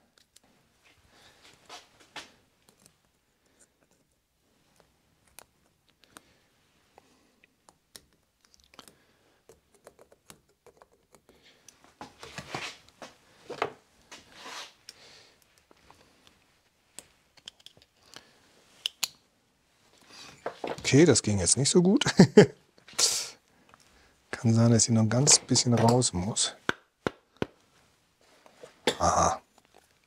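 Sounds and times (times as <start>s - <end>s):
small metal clicks and scrapes: 17.0s - 18.2s.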